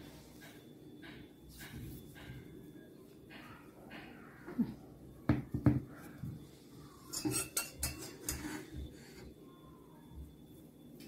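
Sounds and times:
metal spoon clinking on pot: 7.1 - 8.8.

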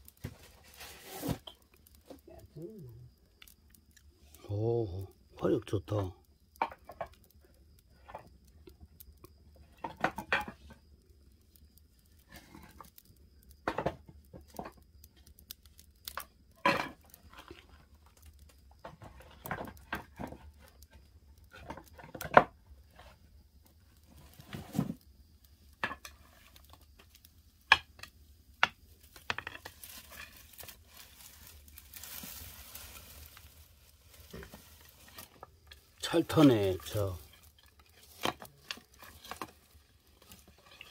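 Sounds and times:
dry twigs rustling and snapping: 0.0 - 4.6, 5.9 - 40.9
fire crackling and popping: 0.0 - 40.9
soft hissing rush: 30.7 - 38.1.

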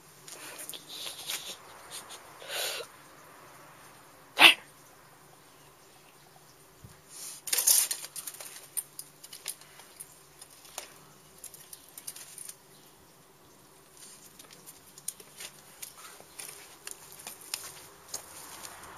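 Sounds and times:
light clicks and scrapes: 6.9 - 12.6, 13.8 - 18.9.

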